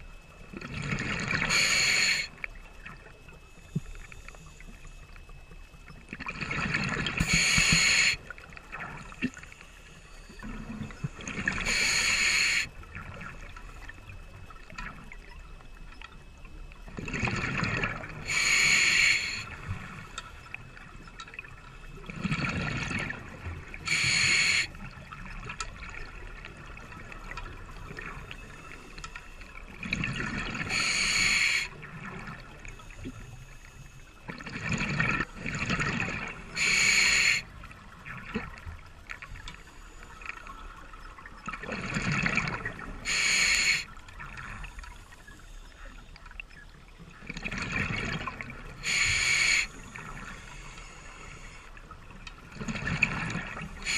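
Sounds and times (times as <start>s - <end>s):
exhaled bubbles gurgling: 0.0s - 4.1s, 5.9s - 9.5s, 10.3s - 15.8s, 16.8s - 33.3s, 34.2s - 39.5s, 40.2s - 45.1s, 46.2s - 53.9s
regulator breathing hiss: 1.4s - 2.4s, 7.2s - 8.3s, 11.6s - 12.7s, 18.2s - 19.7s, 23.8s - 24.8s, 30.6s - 31.8s, 36.4s - 37.5s, 43.0s - 44.0s, 48.8s - 51.8s.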